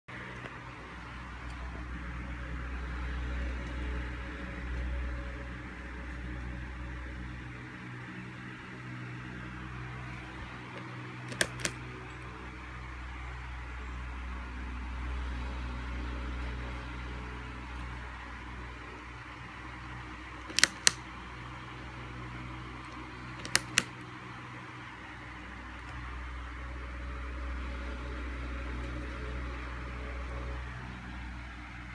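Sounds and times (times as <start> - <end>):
sharp clicks: 10.8 - 11.9, 20.4 - 21.1, 22.8 - 24.0.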